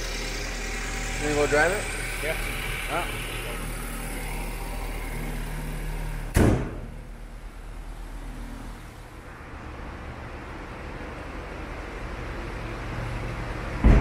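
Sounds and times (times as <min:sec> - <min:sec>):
car engine idling: 0:00.0 - 0:09.3
car door slamming: 0:06.3 - 0:07.0, 0:13.8 - 0:14.0.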